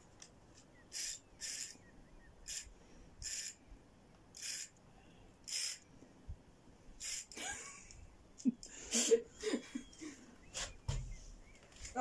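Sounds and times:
fishing reel drag rasping: 0.9s - 1.8s, 2.4s - 3.6s, 4.3s - 4.7s, 5.4s - 5.8s, 7.0s - 7.4s.

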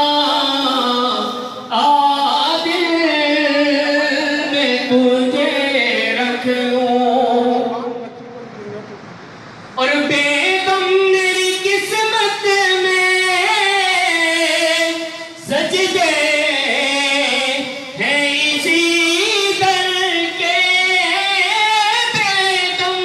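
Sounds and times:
high voice singing unaccompanied: 0.0s - 8.0s.

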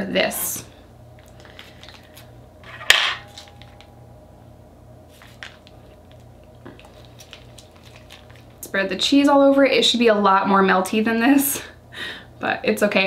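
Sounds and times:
crinkling and squishing sauce: 1.1s - 2.4s, 5.0s - 9.3s.

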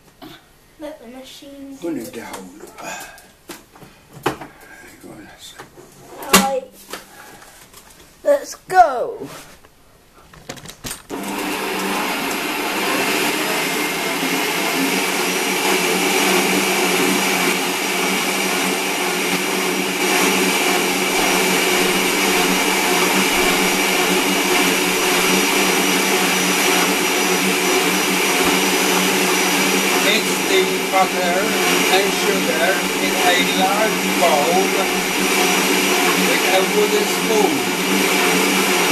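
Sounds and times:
stand mixer motor whining: 11.1s - 38.9s.

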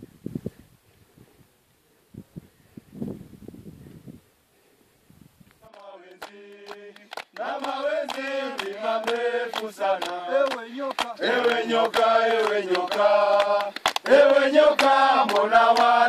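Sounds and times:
men singing chant-like song: 5.6s - 16.0s.

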